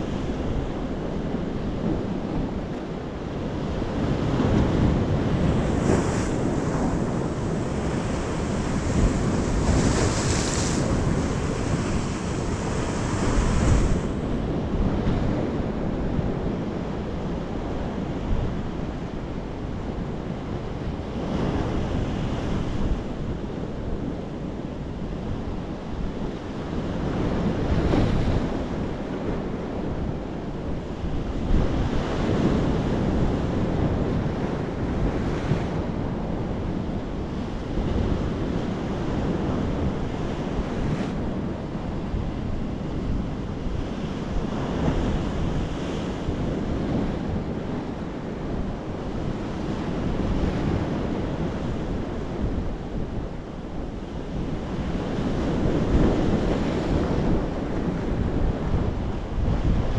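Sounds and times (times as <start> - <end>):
sea waves breaking: 0.0 - 16.9.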